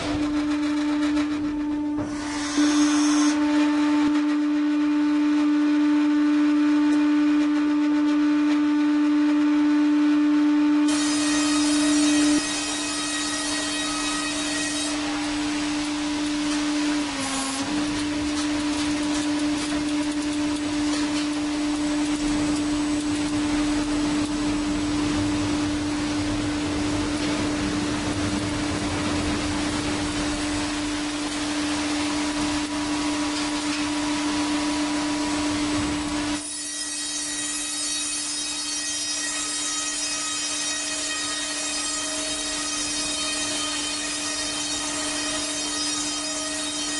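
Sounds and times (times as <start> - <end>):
power tool motor whine: 0.1 - 5.6, 10.9 - 24.6
hiss of cutting wood: 2.0 - 3.4, 10.9 - 15.8.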